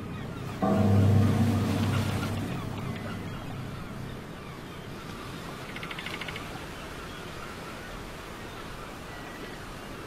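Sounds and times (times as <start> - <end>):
low rumbling drone: 0.6 - 5.2.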